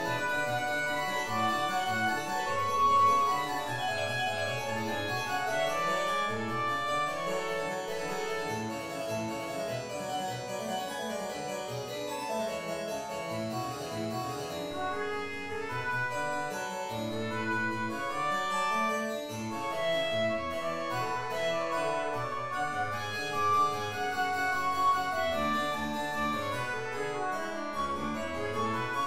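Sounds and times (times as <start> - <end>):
trumpet holding long notes: 0.0 - 8.6, 14.8 - 29.0
harpsichord playing: 0.0 - 29.0.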